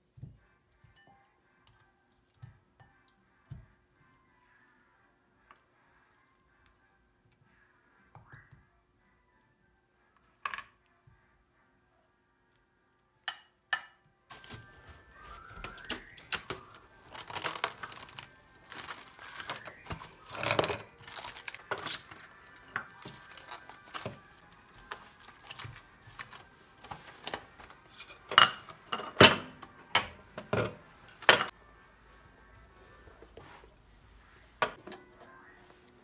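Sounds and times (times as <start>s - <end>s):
cling film crinkling and tearing: 14.3s - 28.2s.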